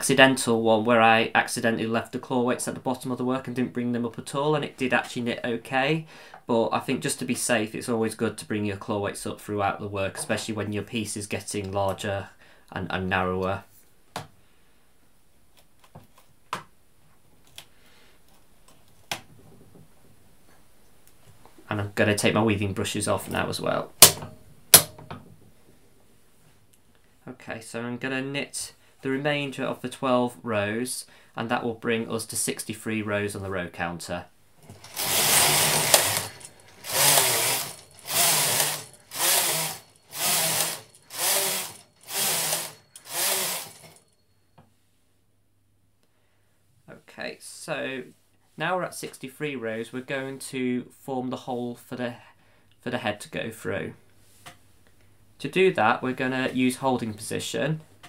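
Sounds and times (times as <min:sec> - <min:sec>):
knitting machine carriage rattling: 0:34.7 - 0:44.0.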